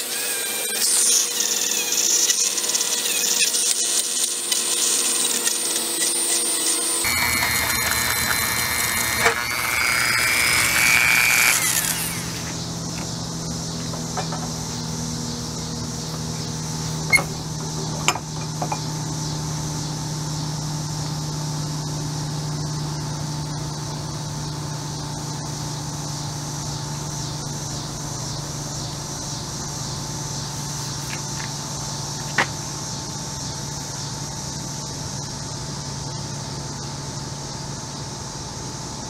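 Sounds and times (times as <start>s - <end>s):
low mechanical hum: 0.0s - 39.0s
high hiss: 1.0s - 17.6s.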